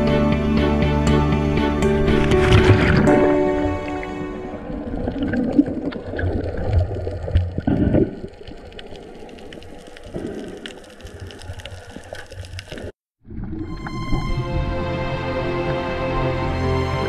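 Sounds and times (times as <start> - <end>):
water sloshing and gurgling: 1.8 - 16.0.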